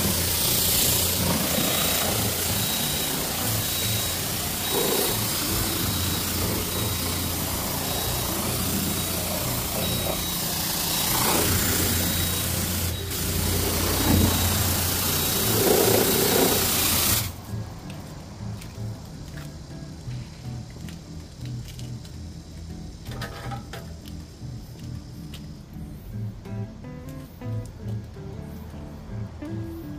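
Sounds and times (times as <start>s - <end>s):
pressure washer spray hissing: 0.0s - 17.4s
steady low hum: 0.0s - 23.1s.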